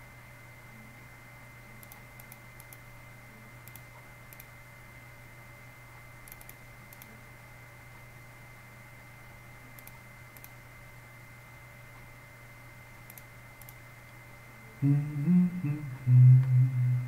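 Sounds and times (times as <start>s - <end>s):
low electrical hum: 0.0s - 17.0s
computer keys and mouse clicking: 1.8s - 2.8s, 3.6s - 4.5s, 6.3s - 7.1s, 9.8s - 10.6s, 13.0s - 13.8s.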